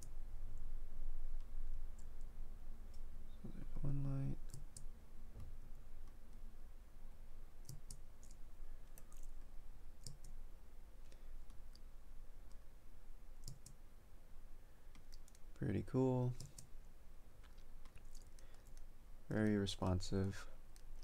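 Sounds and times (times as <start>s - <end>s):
faint low hum: 0.0s - 21.0s
computer mouse clicking: 4.4s - 6.2s, 7.6s - 10.4s, 13.4s - 13.8s, 14.9s - 15.5s, 16.3s - 16.7s, 17.4s - 20.0s.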